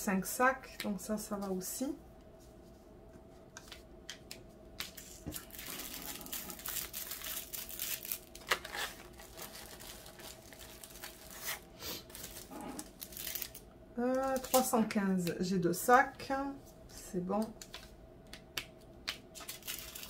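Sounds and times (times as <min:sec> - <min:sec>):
plastic bags crinkling: 0:04.9 - 0:15.0, 0:19.3 - 0:20.0.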